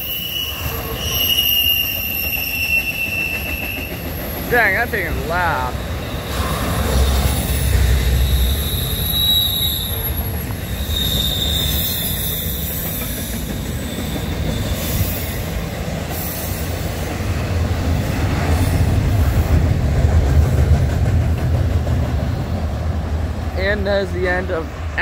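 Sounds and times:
high-pitched wheel squeal: 0.0s - 4.1s, 6.0s - 13.2s
train wheels rumbling on rails: 0.0s - 25.0s.

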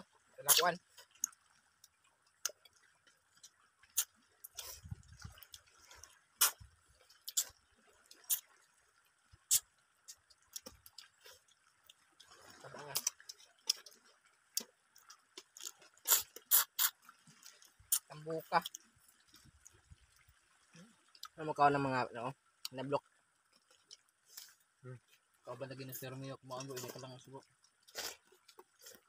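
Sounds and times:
chewing mouth clicks and smacks: 3.4s - 8.5s, 9.5s - 20.2s.

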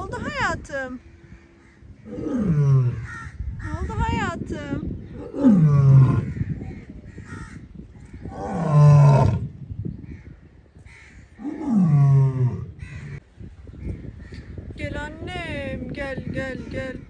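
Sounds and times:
lioness calling: 1.8s - 3.4s, 5.1s - 7.4s, 8.2s - 9.6s, 11.2s - 13.2s.

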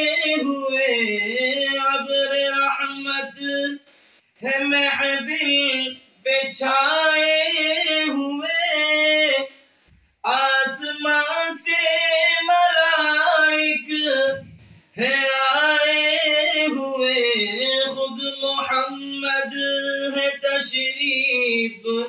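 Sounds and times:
man singing devotional song: 0.0s - 22.0s.

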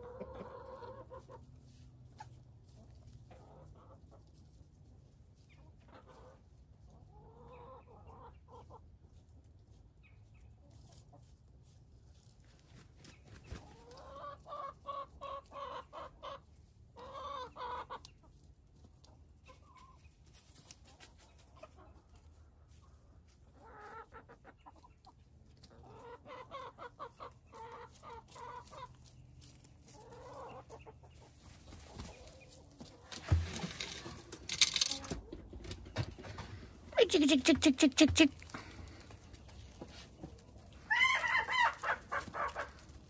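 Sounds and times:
roosters: 0.0s - 11.7s, 12.4s - 43.0s
chickens clucking: 0.0s - 43.0s
rustling: 31.3s - 36.9s.

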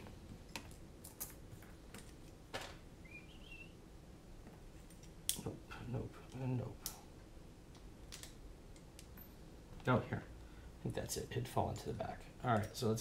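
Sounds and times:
small parts clicking: 7.7s - 9.3s.

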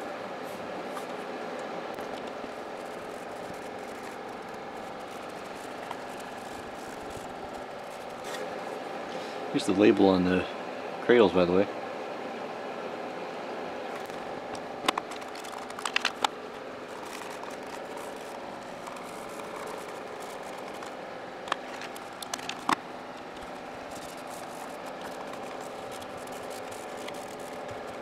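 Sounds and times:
steady background hum: 0.0s - 28.0s.

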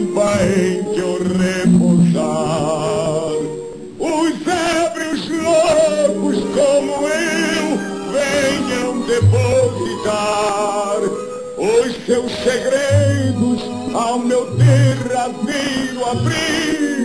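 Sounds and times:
instrumental accompaniment: 0.0s - 4.2s, 5.3s - 17.0s
man singing with vibrato: 0.0s - 17.0s.

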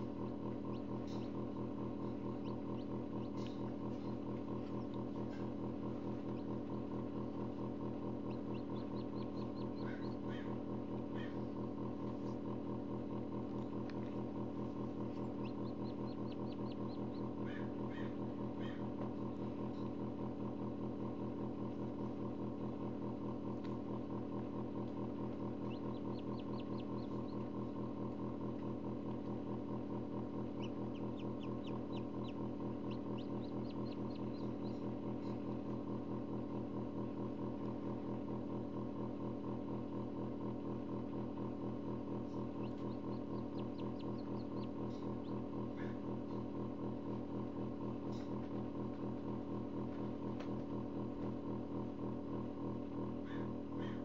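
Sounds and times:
chicks peeping: 0.0s - 12.4s, 13.5s - 19.1s, 24.5s - 35.8s, 42.0s - 46.5s
incubator humming: 0.0s - 54.0s.

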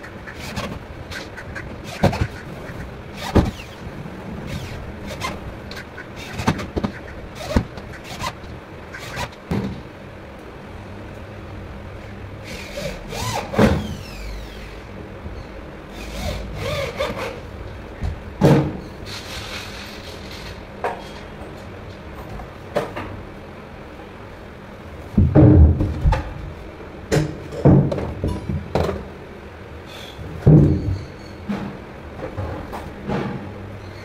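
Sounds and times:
knocks of board and tool handling: 27.1s - 29.0s.

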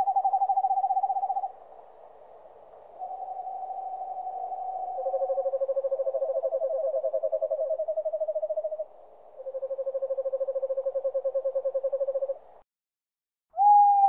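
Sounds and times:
owl trilling call: 0.0s - 1.5s, 3.0s - 12.4s, 13.5s - 14.0s.

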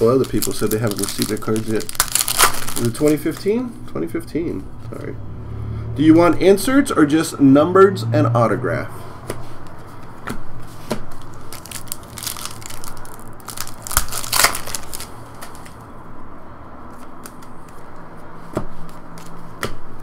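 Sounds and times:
foil pack tearing and crinkling: 0.0s - 3.6s, 11.2s - 15.8s.

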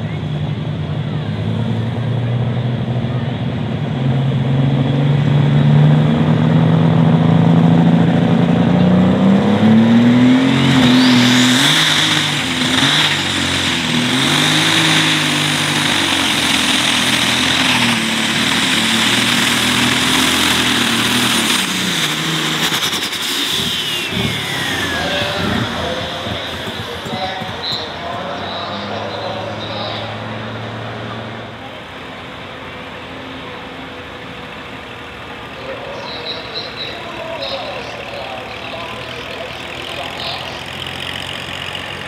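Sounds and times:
tractor engine revving: 0.0s - 42.0s
turbo whine: 10.2s - 30.3s.

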